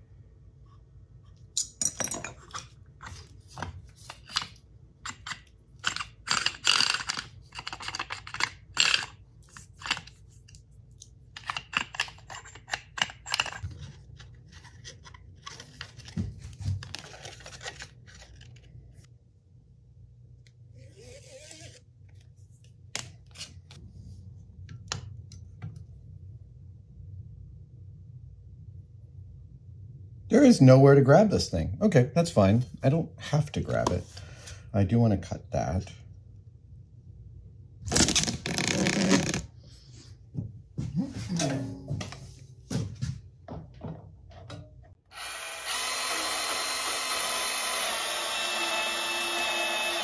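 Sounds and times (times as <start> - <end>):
metal tools clicking and clinking: 1.6 - 2.7.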